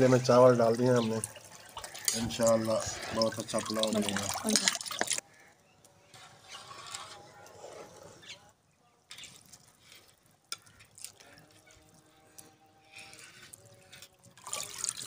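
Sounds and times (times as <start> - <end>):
liquid sloshing and dripping: 0.2 - 5.2, 13.8 - 15.0.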